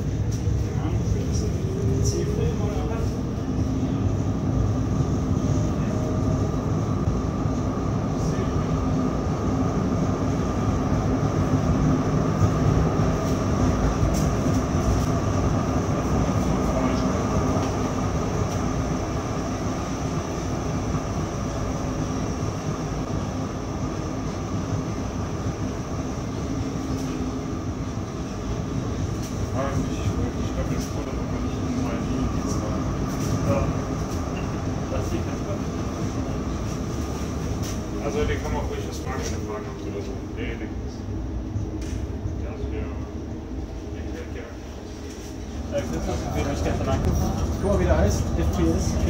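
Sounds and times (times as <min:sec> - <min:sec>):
tram motor and gear tones: 0:00.0 - 0:49.0
wheels rumbling on rail: 0:00.0 - 0:49.0.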